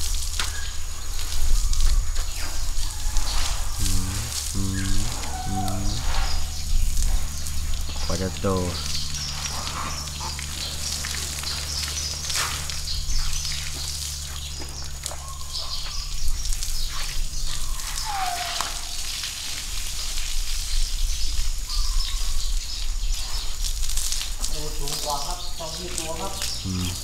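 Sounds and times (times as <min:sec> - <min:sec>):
steady low hum: 0:00.0 - 0:18.1, 0:26.3 - 0:27.0
birds chirping: 0:00.4 - 0:19.2, 0:20.0 - 0:23.7, 0:24.5 - 0:27.0.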